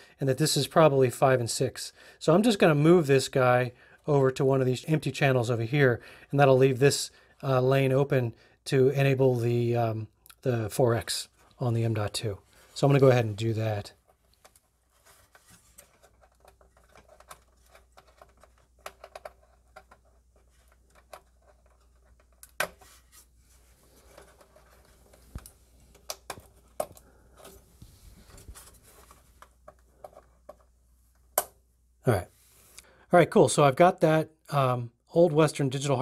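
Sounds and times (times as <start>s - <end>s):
plastic connector clicks and scratches: 14.0s - 22.8s, 24.0s - 27.6s.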